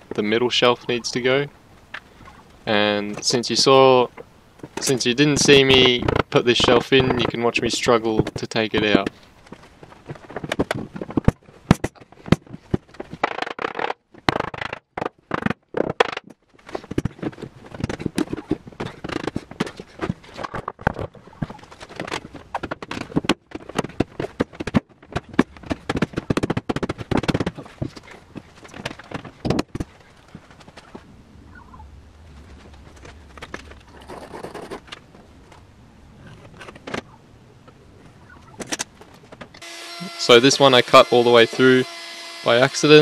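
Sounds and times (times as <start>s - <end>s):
wooden knocks and scrapes: 5.6s - 31.0s.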